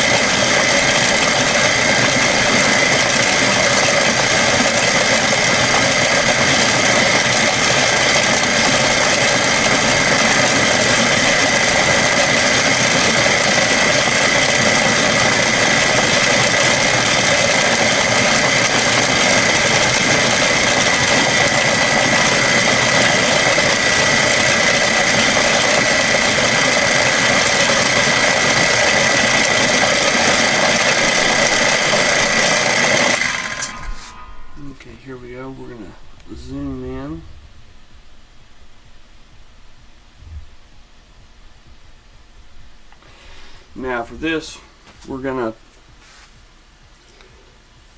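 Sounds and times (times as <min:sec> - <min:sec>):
milling machine whine: 0:00.0 - 0:45.6.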